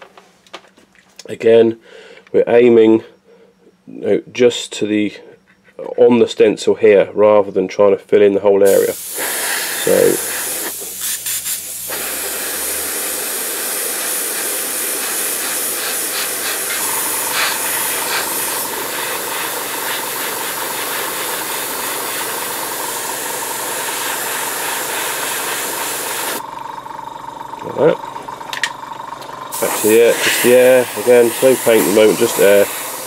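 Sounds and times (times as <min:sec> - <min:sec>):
airbrush spraying paint: 0:08.7 - 0:26.4, 0:29.5 - 0:33.0.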